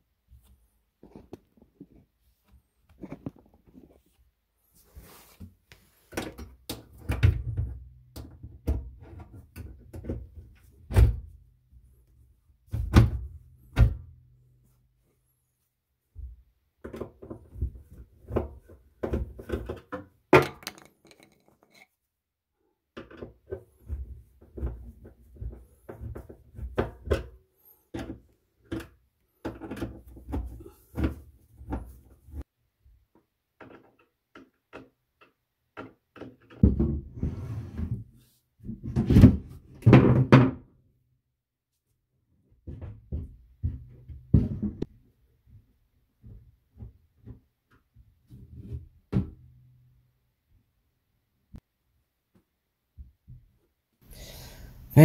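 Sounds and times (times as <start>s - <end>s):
cabinet doors knocking and clicking: 38.8s - 40.7s.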